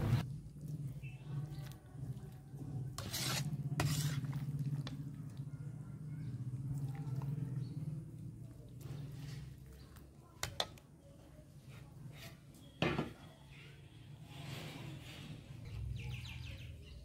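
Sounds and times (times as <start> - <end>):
metal ladle scraping a pan: 2.6 - 5.0, 14.2 - 15.6.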